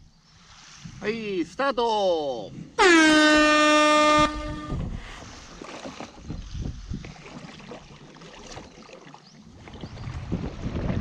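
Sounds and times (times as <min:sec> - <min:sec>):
wind rumbling on microphone: 0:02.5 - 0:08.7, 0:09.5 - 0:11.0
air horn: 0:02.8 - 0:05.0
paddle splashing in water: 0:03.4 - 0:11.0.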